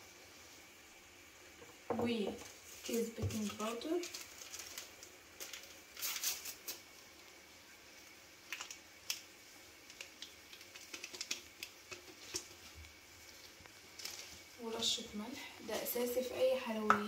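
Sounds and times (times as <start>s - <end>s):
paper sachet crinkling: 2.7s - 6.8s, 13.3s - 14.6s.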